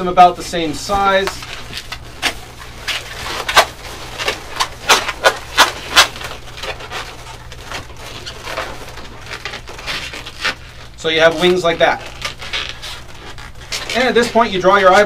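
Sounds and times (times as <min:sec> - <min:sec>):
balloons rubbing: 0:00.0 - 0:15.0
balloons squeaking: 0:00.0 - 0:15.0.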